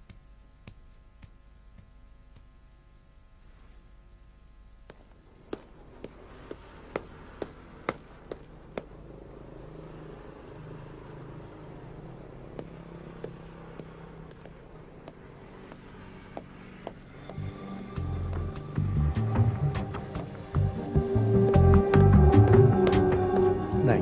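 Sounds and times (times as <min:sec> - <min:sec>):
footsteps on hard surface: 0:00.0 - 0:02.6, 0:04.8 - 0:09.1, 0:12.5 - 0:18.8
low steady hum: 0:00.0 - 0:24.0.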